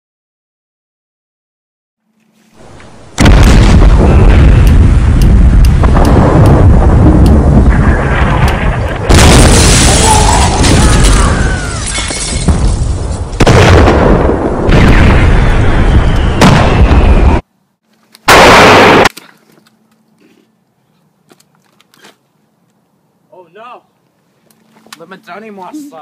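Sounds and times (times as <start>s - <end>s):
rumble of explosions: 2.6s - 17.4s
loud blasts: 3.1s - 17.4s, 18.3s - 19.1s.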